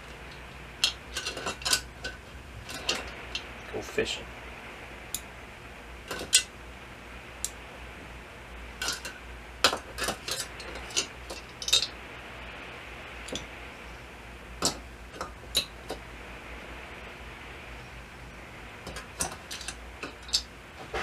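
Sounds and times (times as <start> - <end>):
small metal parts clinking: 0.2 - 3.1, 10.0 - 11.9, 18.9 - 20.5.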